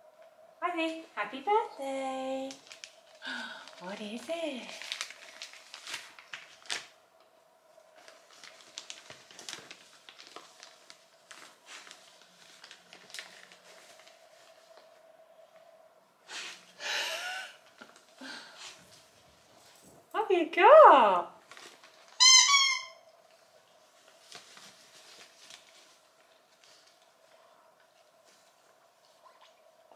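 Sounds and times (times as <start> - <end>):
tissue paper crinkling and tearing: 2.5 - 7.0, 7.9 - 14.9, 21.4 - 22.2, 23.9 - 27.4.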